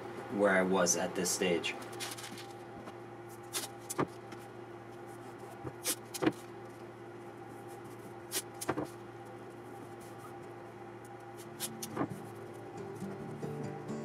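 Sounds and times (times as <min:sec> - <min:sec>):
steady low hum: 0:00.0 - 0:14.0
paper crinkling: 0:01.8 - 0:06.5.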